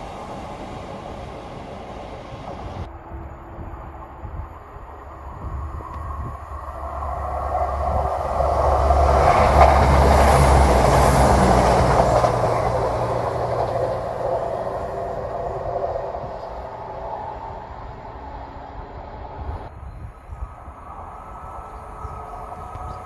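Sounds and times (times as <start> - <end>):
diesel train passing: 0.0 - 19.8, 20.4 - 23.0
wheels on rail: 0.0 - 23.0.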